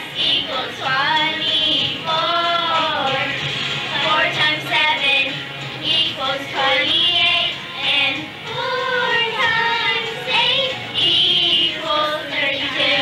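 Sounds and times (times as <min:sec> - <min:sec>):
girl singing into a microphone: 0:00.0 - 0:03.4, 0:04.0 - 0:13.0.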